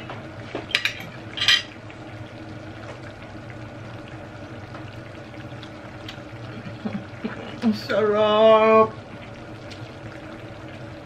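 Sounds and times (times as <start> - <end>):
stew bubbling in a pan: 0.0 - 11.0.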